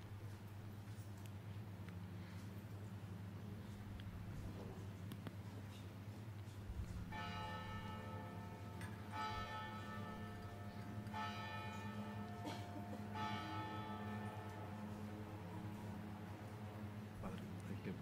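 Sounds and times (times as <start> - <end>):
church bell ringing: 7.1 - 17.2.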